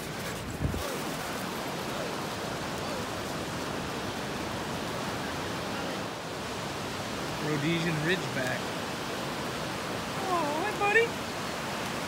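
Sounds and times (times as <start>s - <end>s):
wind noise: 0.0s - 5.6s
ocean surf: 0.0s - 12.0s.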